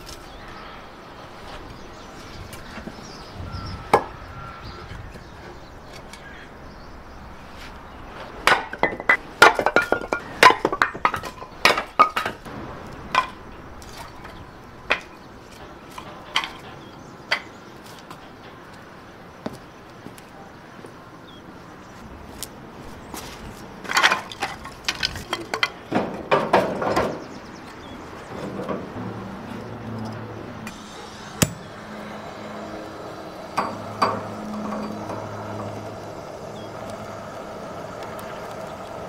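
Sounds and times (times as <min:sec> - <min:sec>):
sharp knocks and clatters: 0:08.4 - 0:17.5, 0:23.8 - 0:27.4.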